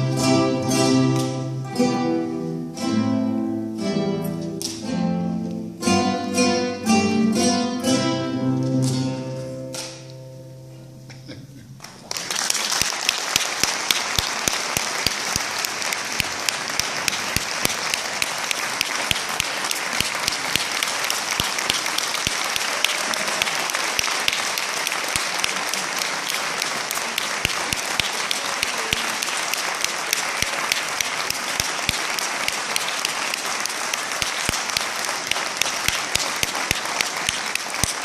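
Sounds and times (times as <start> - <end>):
hands clapping loudly nearby: 0.9 - 1.6, 4.6 - 4.9, 8.8 - 10.1, 11.8 - 38.0
audience applauding: 11.8 - 38.0.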